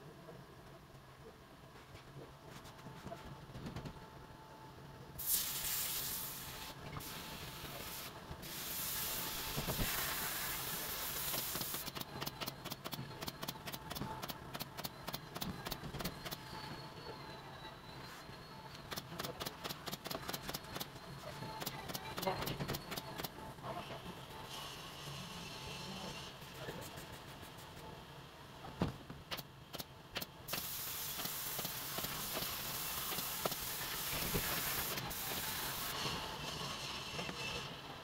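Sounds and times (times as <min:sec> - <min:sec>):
spray gun hissing: 0:05.2 - 0:11.8, 0:30.5 - 0:35.9.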